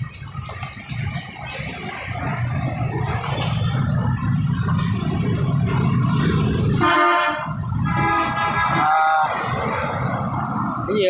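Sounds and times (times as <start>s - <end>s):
street traffic rumble: 0.0s - 11.0s
vehicle horn honking: 6.8s - 8.9s.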